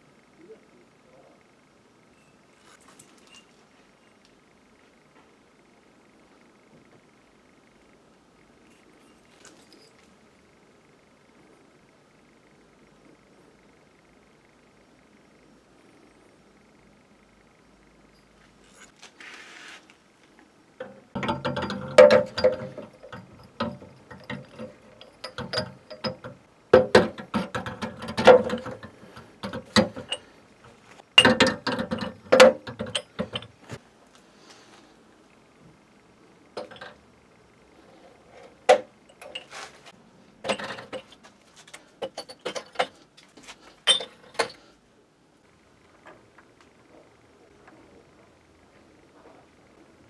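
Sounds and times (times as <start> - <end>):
glass bottles clinking in crate: 21.2 - 30.3, 31.2 - 33.6, 36.6 - 37.0, 38.7 - 39.6, 40.4 - 41.1, 42.0 - 43.0, 43.9 - 44.6.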